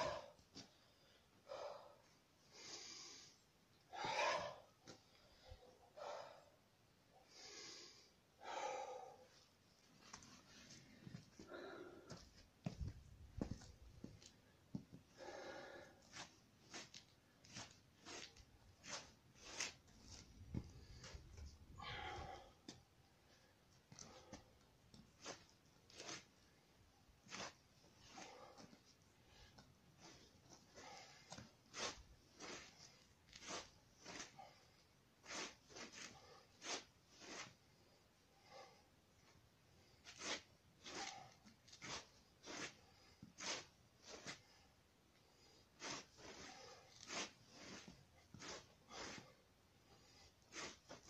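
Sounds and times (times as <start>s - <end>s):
man breathing forcefully: 3.9s - 4.7s, 7.3s - 9.3s, 15.2s - 16.0s.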